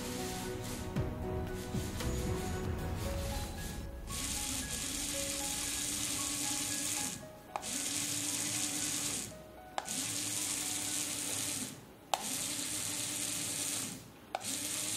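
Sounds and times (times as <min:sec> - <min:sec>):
small motor whirring: 0:04.2 - 0:14.9.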